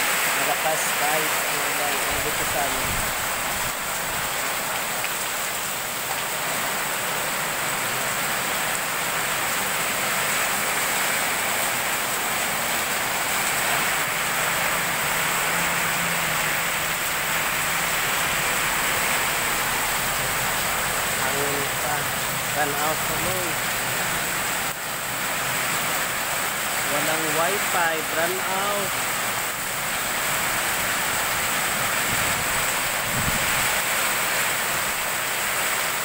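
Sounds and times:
heavy rain on street: 0.0s - 36.0s.

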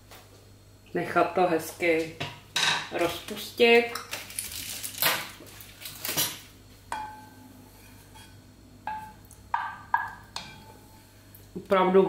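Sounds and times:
spoon knocking against pot: 8.9s - 10.7s.

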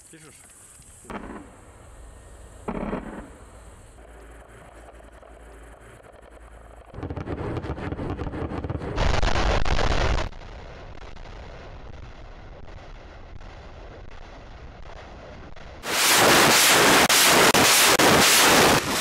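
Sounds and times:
rocket launches roaring: 6.9s - 14.1s, 15.1s - 19.0s.

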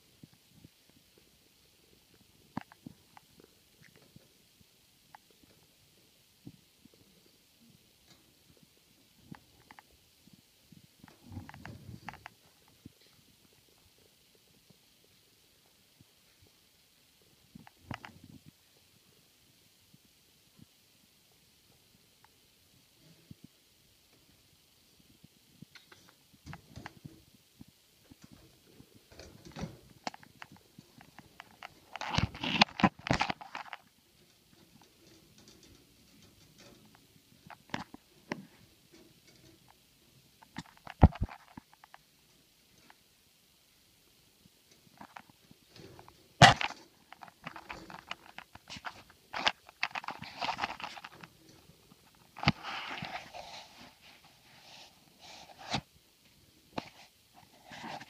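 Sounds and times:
rustling and crackling: 0.0s - 58.0s
phone rustling against fur: 28.3s - 39.4s, 44.9s - 55.9s.

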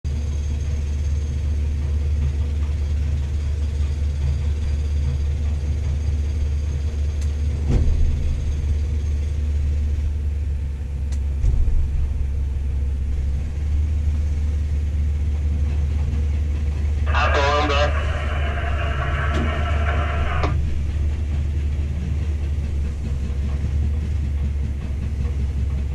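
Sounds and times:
crane machinery humming: 0.2s - 25.9s.

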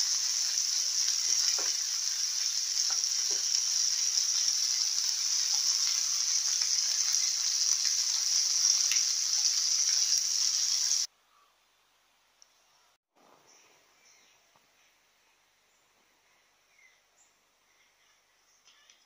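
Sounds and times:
fish sizzling in oil: 0.0s - 11.1s.

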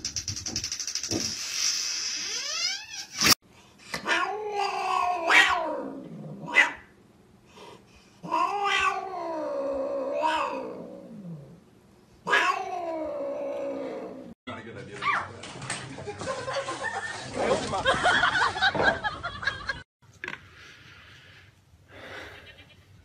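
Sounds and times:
cat yowling: 4.0s - 5.9s, 8.2s - 10.8s, 12.3s - 14.2s.

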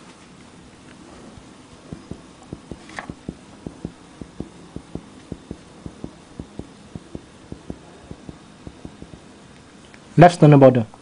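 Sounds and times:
fingertip tapping on chest: 1.4s - 9.3s.

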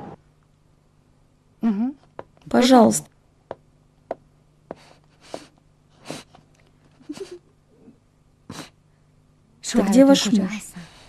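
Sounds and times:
woman sobbing: 6.9s - 7.5s.

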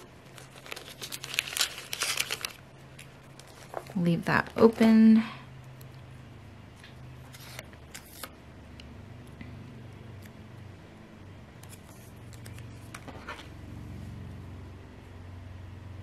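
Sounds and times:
paper rustle: 0.0s - 4.0s, 7.3s - 8.3s
low steady hum: 0.0s - 16.0s.

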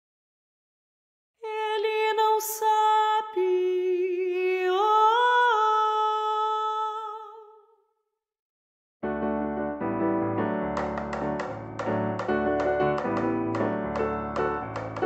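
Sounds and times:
woman singing unaccompanied: 1.4s - 7.6s.

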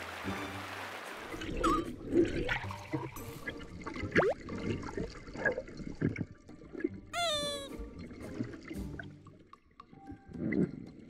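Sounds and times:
sea water sloshing and gurgling: 0.8s - 7.1s
falling pitch tone: 7.2s - 7.7s.

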